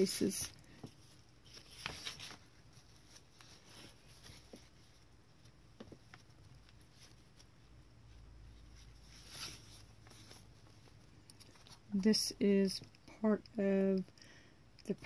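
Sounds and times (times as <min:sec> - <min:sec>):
paper pages rustling: 0:00.0 - 0:07.8, 0:08.4 - 0:12.0.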